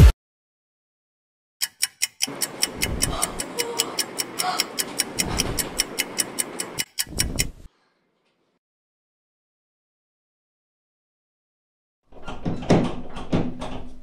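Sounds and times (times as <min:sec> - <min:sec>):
fast clock ticking: 0:01.6 - 0:07.6.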